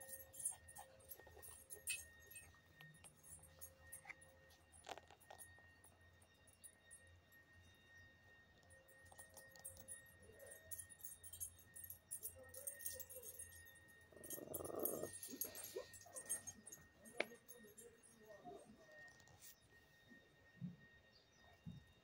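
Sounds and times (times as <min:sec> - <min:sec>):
dog throaty grunt: 0:14.2 - 0:15.8.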